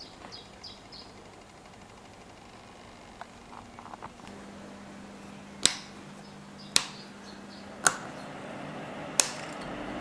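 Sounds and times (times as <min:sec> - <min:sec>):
low steady hum: 0:00.0 - 0:10.0
toggle switch clicks: 0:05.6 - 0:06.0, 0:06.7 - 0:07.0.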